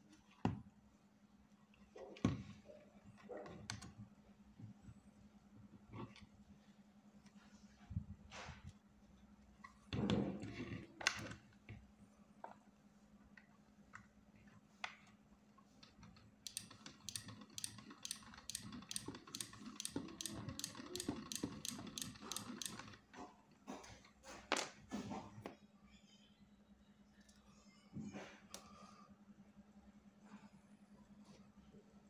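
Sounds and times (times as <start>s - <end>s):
plastic crank mechanism clicking: 16.4s - 23.1s.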